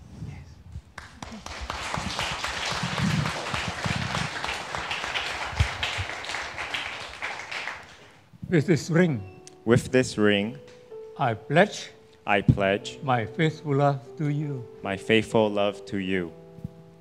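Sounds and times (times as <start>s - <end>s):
crowd applauding: 1.0s - 8.3s.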